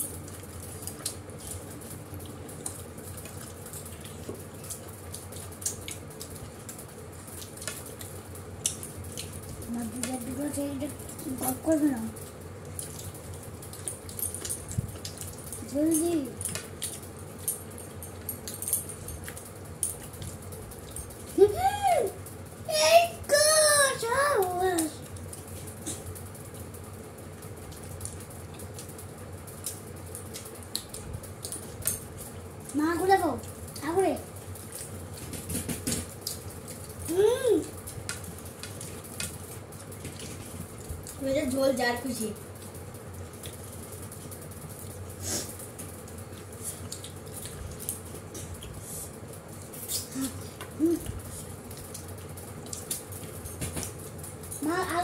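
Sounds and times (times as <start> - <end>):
low room hum: 0.0 - 55.0
people chewing and eating: 0.0 - 55.0.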